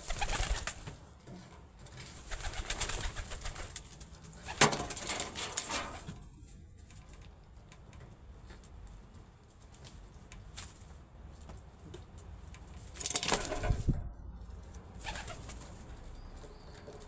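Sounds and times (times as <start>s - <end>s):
pigeon wings flapping: 0.0s - 1.0s, 2.1s - 6.1s, 13.0s - 14.0s, 15.0s - 15.9s.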